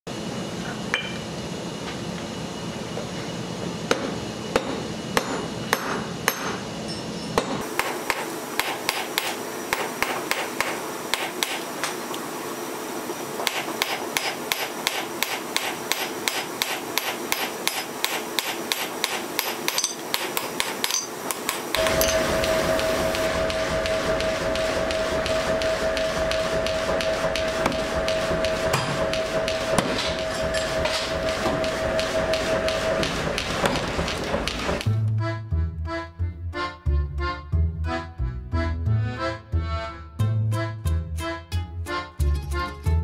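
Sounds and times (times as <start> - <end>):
hammer blows on anvil: 3.9 - 11.6, 13.4 - 34.8
music: 21.8 - 30.7, 34.8 - 43.0.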